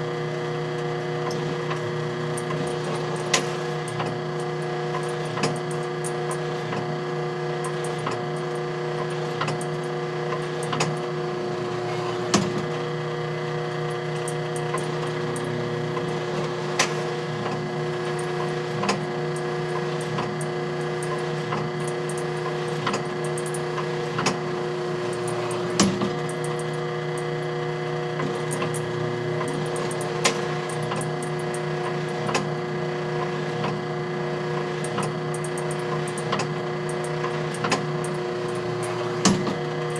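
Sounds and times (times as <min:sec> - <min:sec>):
machine hum: 0:00.0 - 0:39.9
mechanism clicks and knocks: 0:25.1 - 0:27.3, 0:34.8 - 0:39.9.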